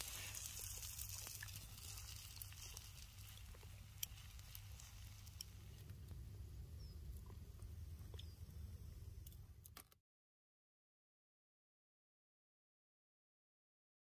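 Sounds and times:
steady low rumble: 0:01.6 - 0:09.6
small clicks: 0:09.2 - 0:10.0.

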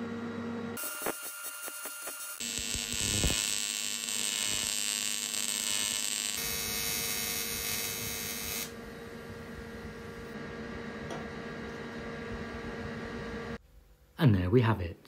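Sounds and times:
welding arc buzzing: 0:00.8 - 0:10.4.

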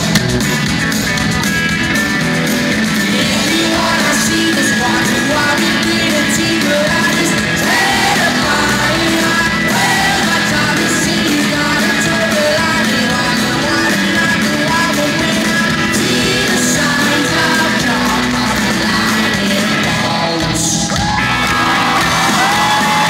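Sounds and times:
live rock band playing: 0:00.0 - 0:23.0
man singing: 0:03.1 - 0:21.2.

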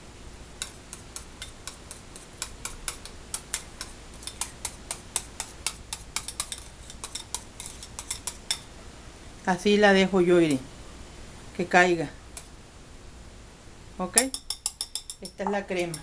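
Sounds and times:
wire whisk clicking against bowl: 0:00.6 - 0:07.4, 0:14.2 - 0:16.0.

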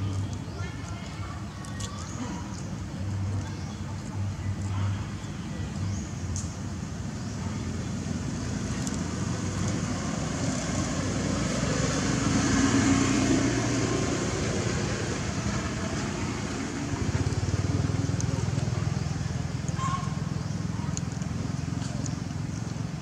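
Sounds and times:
vehicle passing by: 0:07.4 - 0:23.0.

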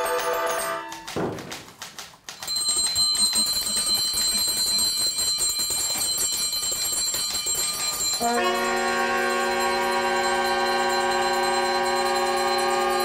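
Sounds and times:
many small bells jangling: 0:00.0 - 0:01.2, 0:02.3 - 0:13.0.

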